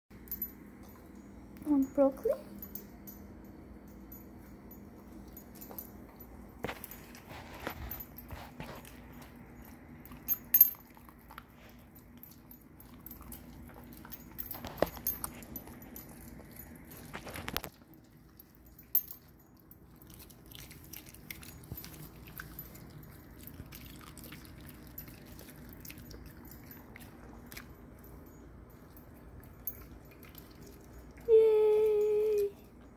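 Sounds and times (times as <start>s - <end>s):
faint low hum: 0.1s - 32.9s
dog chewing crunchy food: 5.2s - 18.8s, 19.5s - 31.2s.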